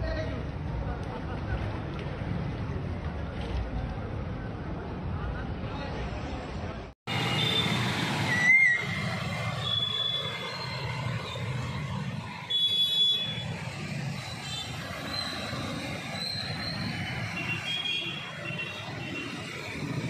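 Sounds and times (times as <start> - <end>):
motorcycle and car engines: 6.6 - 20.0.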